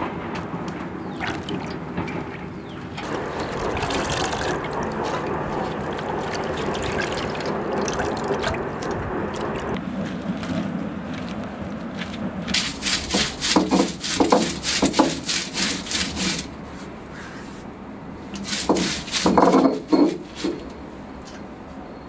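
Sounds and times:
stone scraping on stone: 12.5 - 16.5, 18.4 - 20.7.

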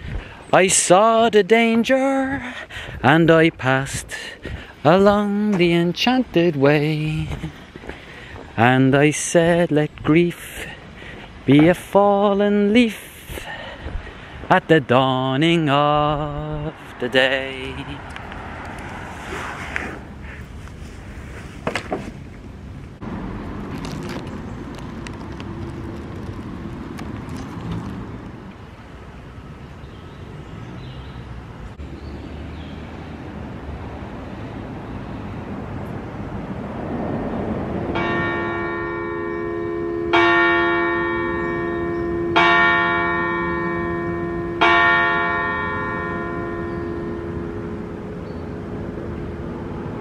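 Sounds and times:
church bell striking: 37.9 - 49.7.

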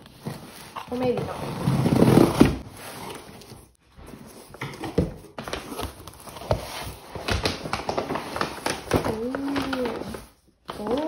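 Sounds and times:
plastic packaging crinkling: 5.3 - 11.0.

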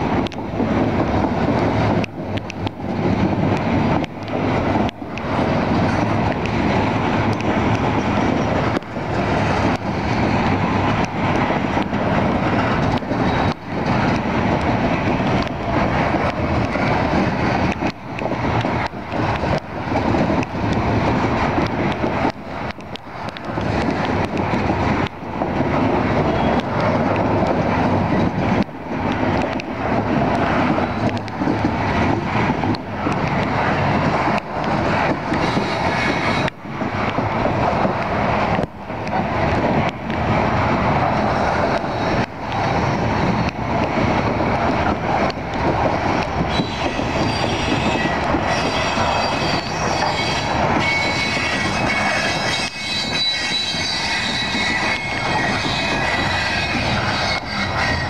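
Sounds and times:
train wheels clattering on rail: 0.0 - 58.0
high wheel squeal: 35.3 - 36.5, 46.5 - 58.0.

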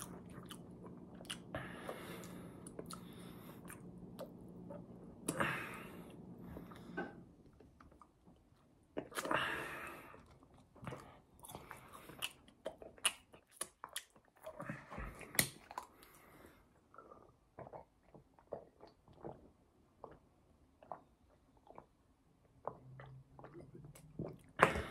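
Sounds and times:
chewing clicks and smacks: 10.3 - 16.2.

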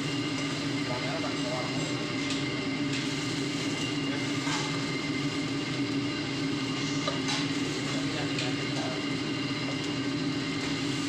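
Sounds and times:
stove roaring: 0.0 - 11.0.

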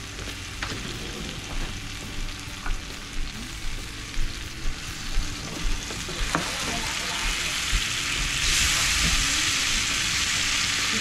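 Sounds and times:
vegetables sizzling in hot oil: 0.0 - 11.0.

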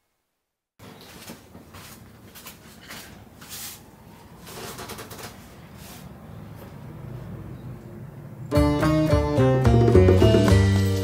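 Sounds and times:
people rustling on tatami floor: 0.8 - 4.0.

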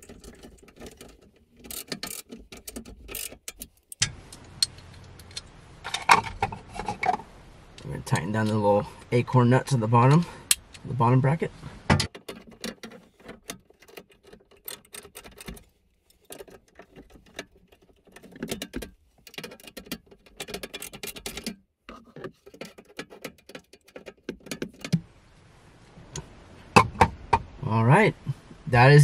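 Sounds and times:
hand ratchet clicking: 0.0 - 5.4.

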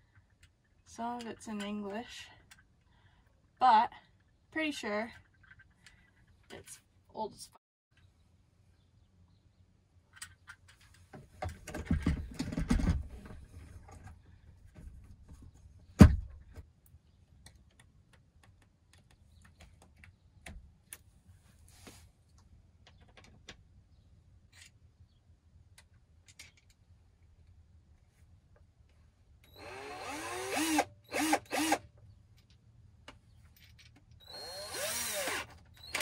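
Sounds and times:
drill bits rattling: 29.5 - 31.8, 33.8 - 36.0.

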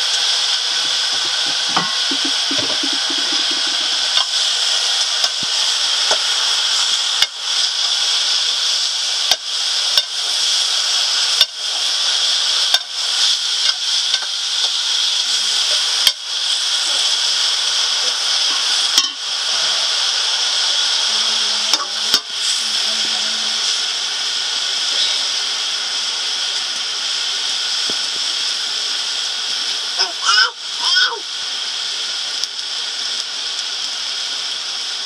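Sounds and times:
high-pitched hiss: 0.0 - 35.0.

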